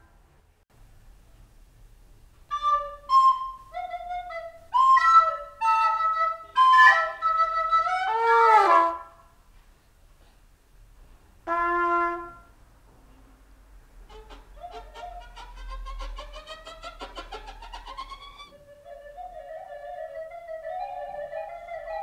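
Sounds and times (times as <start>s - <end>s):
trumpet and flute notes: 2.5s - 9.2s, 11.5s - 12.5s.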